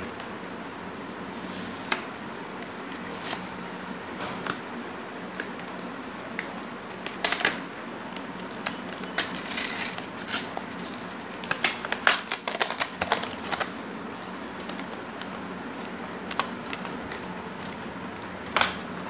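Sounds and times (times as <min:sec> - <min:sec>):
packaging tearing and crinkling: 0:06.9 - 0:13.8.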